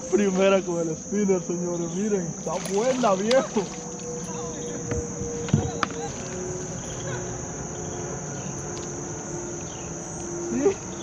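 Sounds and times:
high-pitched insect chorus: 0.0s - 11.0s
fish splashing at water surface: 2.4s - 4.1s.

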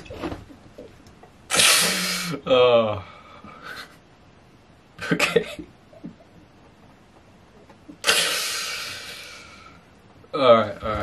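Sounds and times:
man exhaling breathily: 8.0s - 9.8s.

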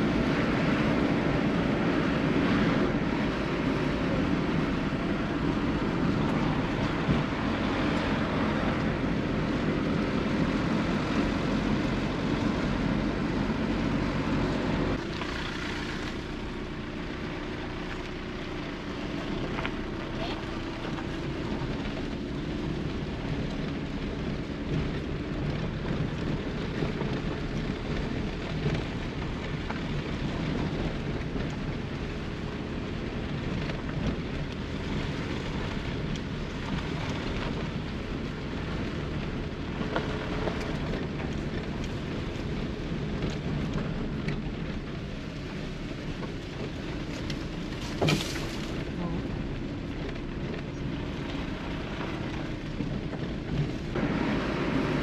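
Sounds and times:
tyres rumbling on rough track: 0.0s - 55.0s
grit and stones crackling: 46.2s - 54.0s.

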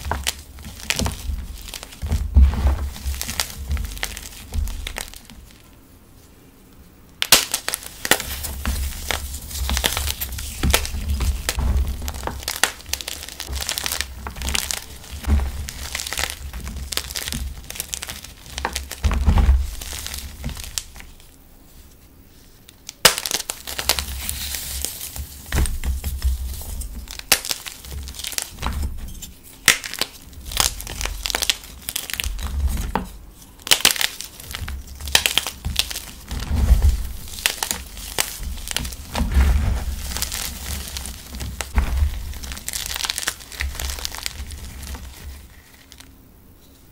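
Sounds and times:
hands crushing chalk blocks: 0.0s - 5.8s, 7.2s - 21.4s, 22.7s - 46.1s
sharp crack: 7.2s - 21.3s, 22.7s - 25.9s, 26.6s - 28.9s, 29.5s - 32.5s, 33.6s - 46.1s.

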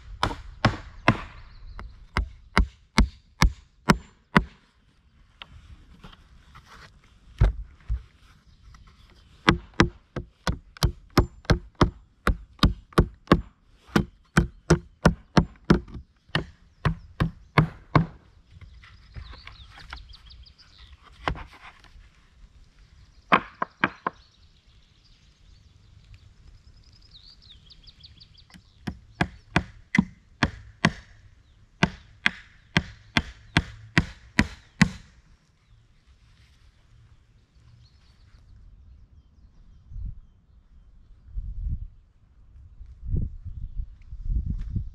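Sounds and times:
sharp blows on wood: 0.0s - 1.5s, 2.1s - 4.6s, 9.4s - 18.2s, 28.8s - 31.2s, 31.8s - 35.2s.

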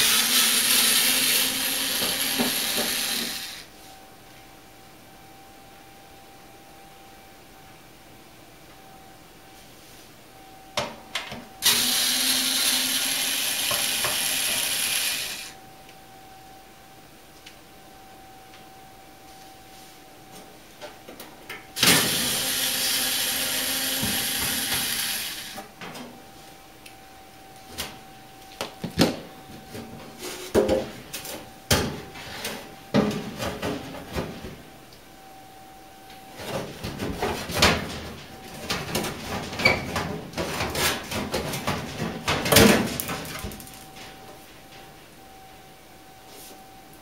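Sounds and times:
cordless drill driving screw: 11.6s - 15.5s.

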